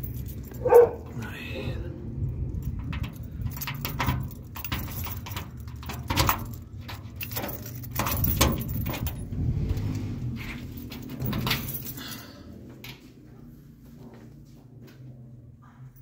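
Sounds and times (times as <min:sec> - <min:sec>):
keys jangling: 0:00.0 - 0:01.2, 0:02.2 - 0:12.6
metal door opening: 0:02.6 - 0:12.2.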